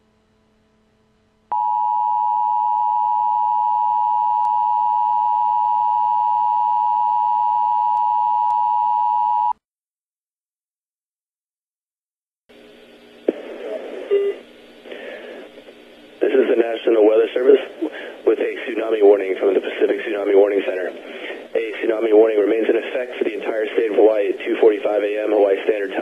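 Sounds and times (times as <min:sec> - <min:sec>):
loud steady electronic tone: 0:01.5 - 0:08.7.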